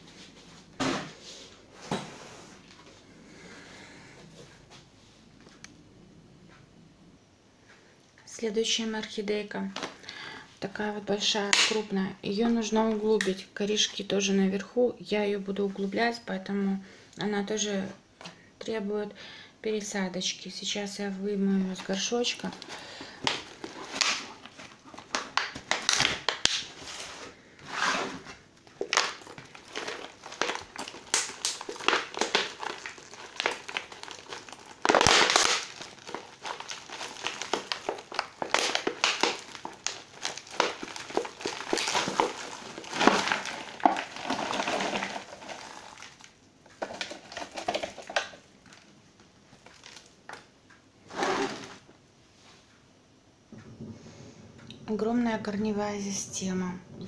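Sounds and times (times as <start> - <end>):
plastic plant pot crinkling: 21.7 - 48.9, 49.5 - 50.5.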